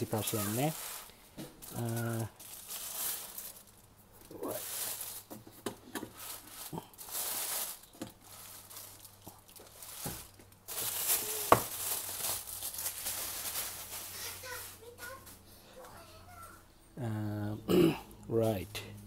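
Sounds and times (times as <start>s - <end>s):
plastic packaging crinkling: 0.0s - 5.4s, 6.0s - 15.2s.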